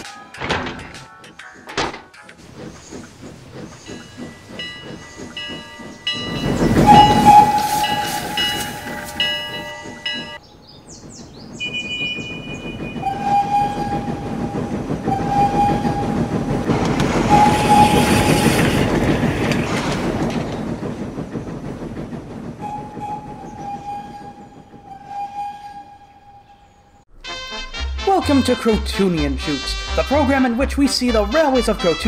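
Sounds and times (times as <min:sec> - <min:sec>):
steam train rumbling past: 0:00.1 - 0:32.0
train whistle blasts: 0:06.8 - 0:09.2, 0:15.1 - 0:16.2, 0:17.2 - 0:18.7.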